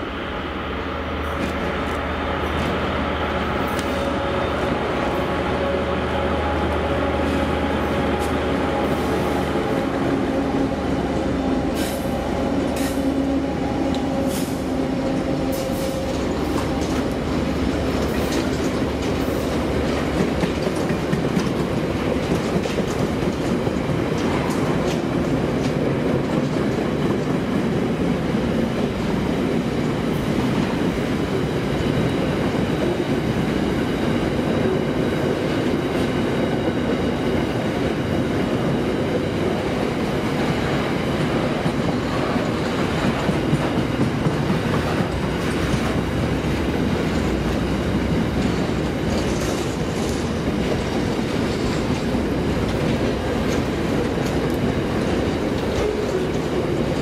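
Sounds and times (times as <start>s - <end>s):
locomotive engine drone: 0.0s - 26.5s
wheel-on-rail rumble: 1.3s - 57.0s.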